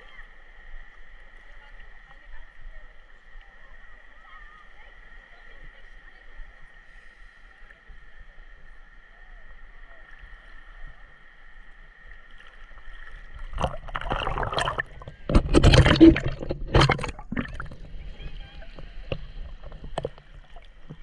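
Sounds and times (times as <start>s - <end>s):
seawater splashing at microphone: 12.3s - 21.0s.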